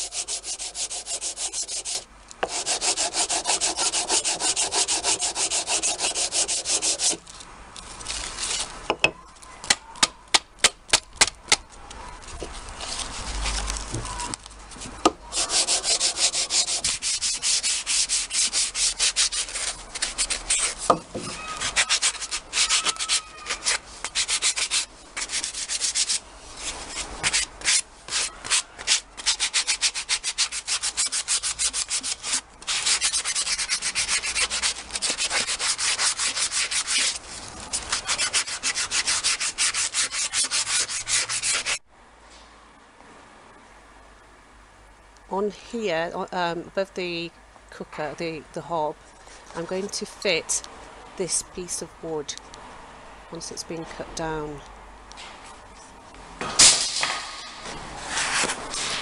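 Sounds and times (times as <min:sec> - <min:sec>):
sandpaper rubbing wood: 0:00.0 - 0:07.2, 0:15.3 - 0:41.8, 0:58.0 - 0:59.0.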